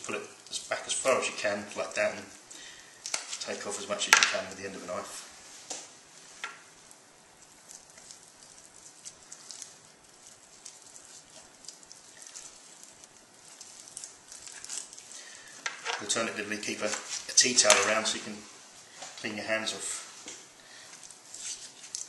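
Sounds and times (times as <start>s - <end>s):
skin peeling from chicken: 6.9s - 18.1s, 20.9s - 22.0s.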